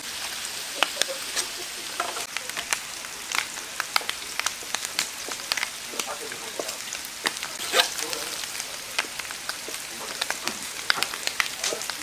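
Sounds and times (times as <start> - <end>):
meat sizzling on a griddle: 0.0 - 12.0.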